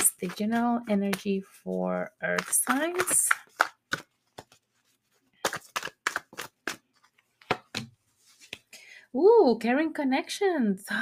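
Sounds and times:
cards shuffling clicks and slaps: 2.2s - 8.7s.

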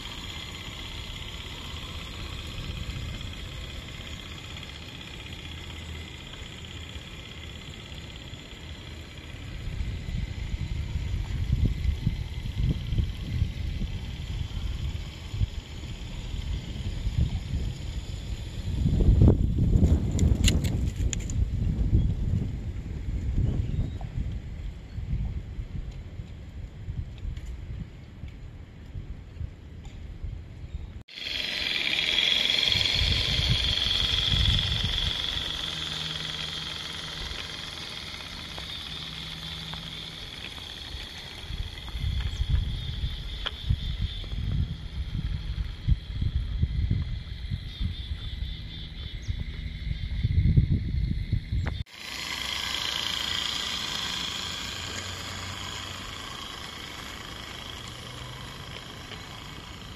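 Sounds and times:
steam locomotive hissing: 0.0s - 18.8s, 31.1s - 42.0s, 51.9s - 59.9s
wind on microphone: 9.5s - 31.0s, 32.6s - 38.1s, 40.2s - 51.9s.

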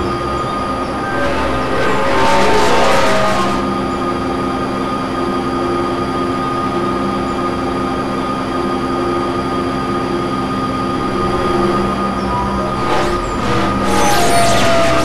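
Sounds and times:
low rumbling noise: 0.0s - 4.4s, 10.7s - 15.0s
electronic drone of held tones: 0.0s - 15.0s.

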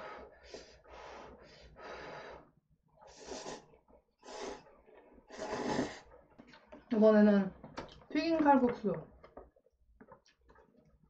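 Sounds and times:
noodles slurping: 0.6s - 6.8s.

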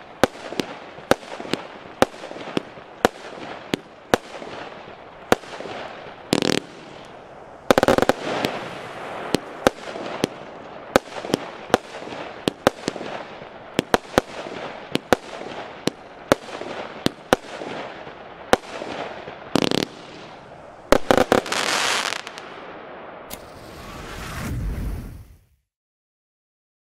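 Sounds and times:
firework bangs: 0.0s - 25.4s
firework crackling hiss: 5.3s - 16.5s, 19.5s - 22.5s, 23.3s - 25.6s
low whoosh: 23.4s - 25.6s.

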